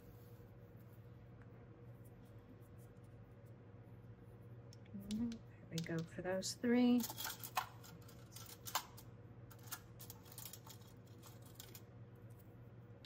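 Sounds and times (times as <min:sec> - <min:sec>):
air purifier humming: 0:00.0 - 0:13.0
light clicks and taps: 0:04.7 - 0:06.2.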